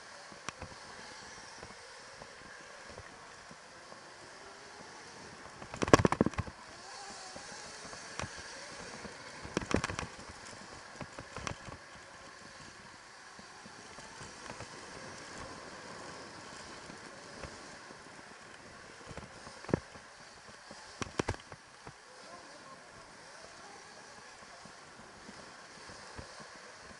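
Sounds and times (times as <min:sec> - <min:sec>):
dirt bike riding noise: 0:00.0 - 0:26.9
bike clattering over bumps: 0:05.0 - 0:22.0.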